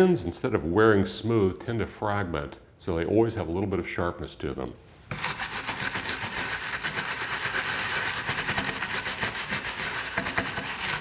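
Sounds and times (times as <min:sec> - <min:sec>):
stiff brush scrubbing wood: 0:05.1 - 0:11.0.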